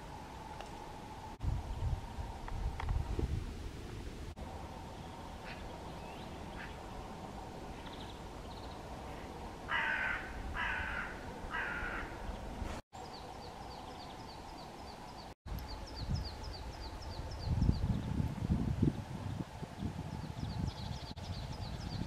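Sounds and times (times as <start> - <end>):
crow cawing: 9.7 - 12.2.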